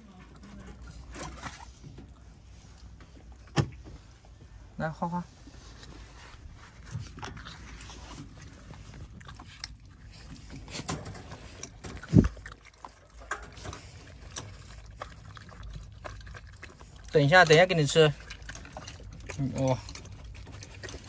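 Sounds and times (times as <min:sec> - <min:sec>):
dog chewing wetly: 0:05.5 - 0:21.0.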